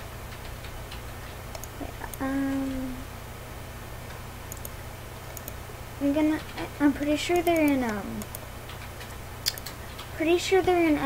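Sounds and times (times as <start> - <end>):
low recording noise hum: 0.0 - 11.0
faint mouse clicks: 1.5 - 2.3, 4.1 - 5.6, 7.3 - 10.1.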